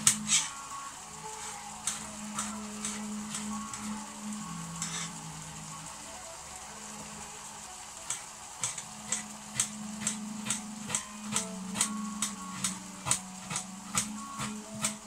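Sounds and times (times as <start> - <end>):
pan simmering hiss: 0.0 - 15.0.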